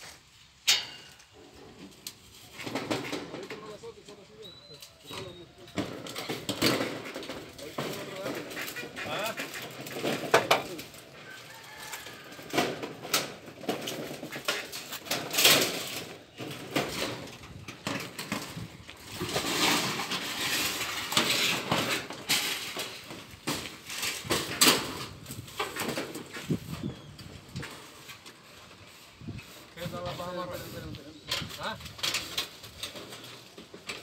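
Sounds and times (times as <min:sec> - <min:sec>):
metal roofing sheet clanking: 0:00.7 - 0:04.0, 0:05.1 - 0:11.1, 0:12.4 - 0:28.2.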